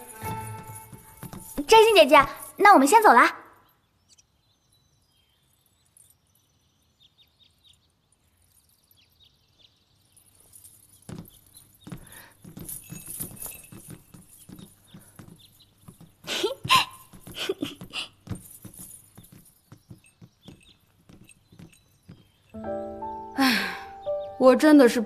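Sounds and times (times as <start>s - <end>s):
horse hooves clip-clopping: 0.0s - 2.6s, 10.2s - 22.6s.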